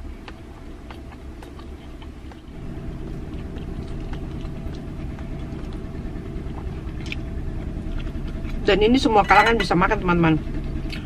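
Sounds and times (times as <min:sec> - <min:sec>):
person chewing food: 0:00.0 - 0:08.6
low hum: 0:00.0 - 0:11.0.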